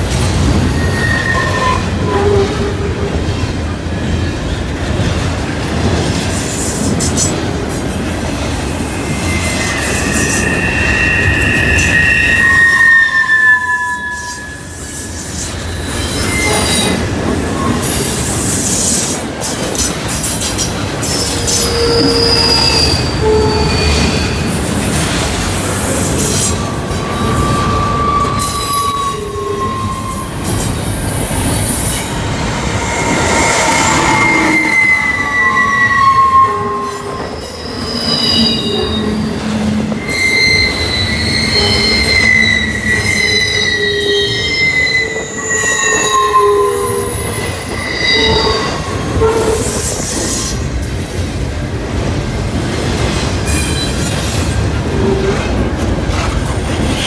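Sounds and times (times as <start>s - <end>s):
train wheels rumbling on rail: 0.0s - 57.0s
high wheel squeals: 0.2s - 2.6s, 8.7s - 19.0s, 21.0s - 50.6s, 53.4s - 55.6s.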